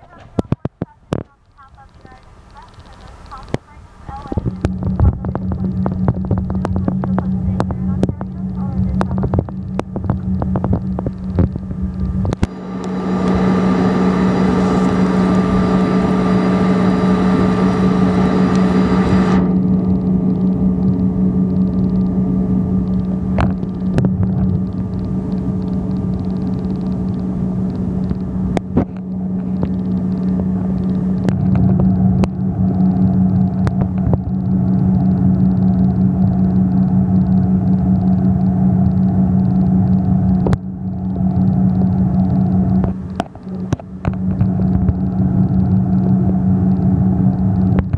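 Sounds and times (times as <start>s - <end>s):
jet engine hum: 0.0s - 47.9s
sharp clicks: 0.1s - 13.4s.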